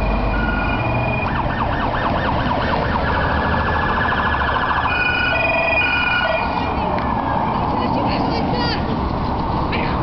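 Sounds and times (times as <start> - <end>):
police siren wailing: 0.0 - 7.9.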